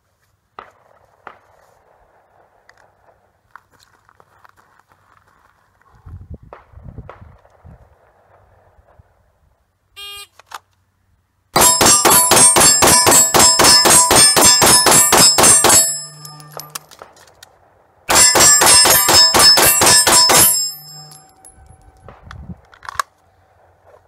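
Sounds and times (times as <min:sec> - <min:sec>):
bullets ringing steel target: 0:11.6 - 0:17.0, 0:18.1 - 0:22.0
handgun shots: 0:11.6 - 0:17.2, 0:18.1 - 0:21.5.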